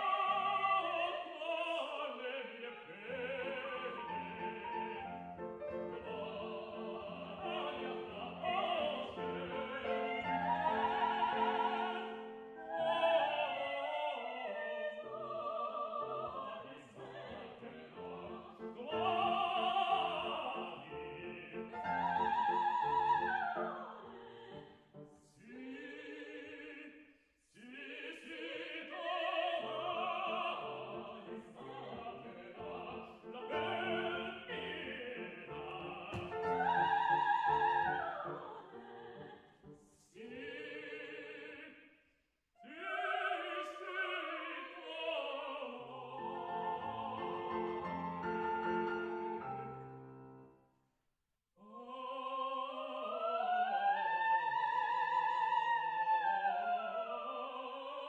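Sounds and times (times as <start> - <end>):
operatic tenor singing: 0.0 - 24.6, 25.4 - 27.0, 27.6 - 39.4, 40.1 - 41.8, 42.6 - 49.7, 51.6 - 58.0
grand piano accompaniment: 3.1 - 12.8, 16.1 - 25.2, 29.9 - 39.8, 46.2 - 50.5.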